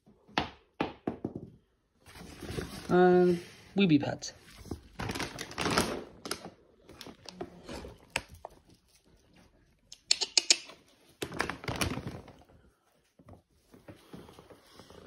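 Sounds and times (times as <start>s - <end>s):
plastic bag crinkling: 4.6s - 9.3s, 11.0s - 13.0s
puppy claws on wooden floor: 6.9s - 12.6s.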